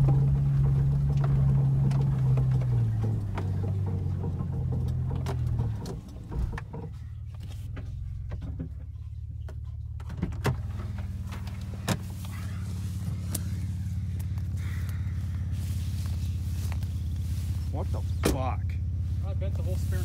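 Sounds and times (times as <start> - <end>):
car body knocks and rattles: 0.0 - 12.2
cabin drone and rumble: 0.0 - 20.0.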